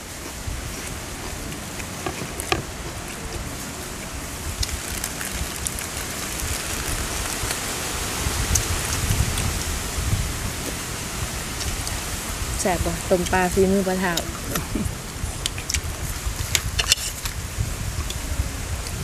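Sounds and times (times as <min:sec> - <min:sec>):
wind buffeting microphone: 0:00.0 - 0:19.0
wind hissing: 0:00.0 - 0:19.0
faint eating clicks: 0:00.2 - 0:07.7.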